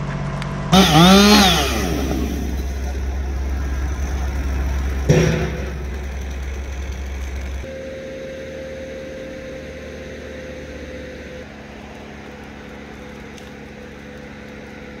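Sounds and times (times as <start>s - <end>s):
crane engine running: 0.0s - 15.0s
steady whine: 0.0s - 15.0s.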